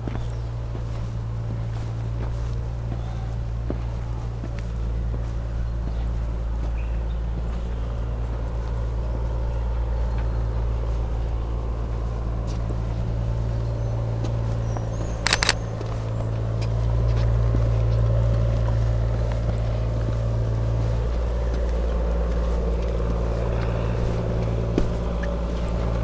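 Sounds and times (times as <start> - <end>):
sharp clicks: 15.2 - 15.8.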